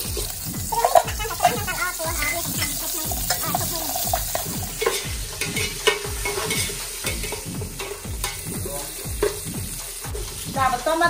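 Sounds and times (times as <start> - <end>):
aromatics sizzling in hot oil: 0.0 - 11.0
metal ladle scraping a pot: 2.8 - 8.4.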